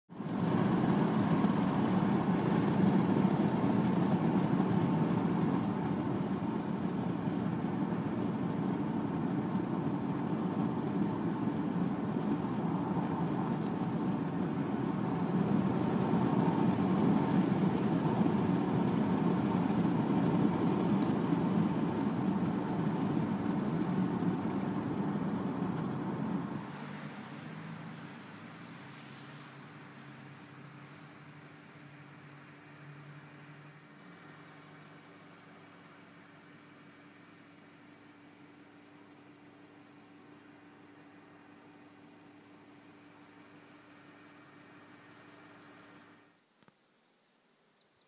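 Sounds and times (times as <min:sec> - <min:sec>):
car cabin road rumble: 0:00.2 - 0:28.1.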